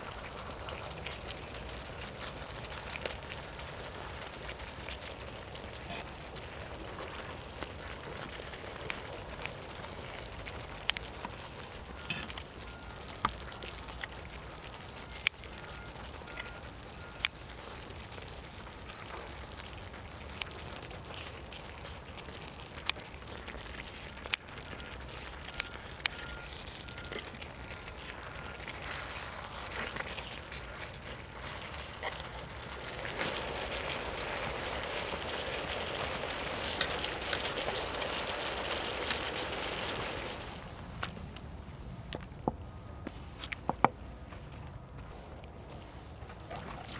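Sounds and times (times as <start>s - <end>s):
meat sizzling: 0.0s - 40.8s.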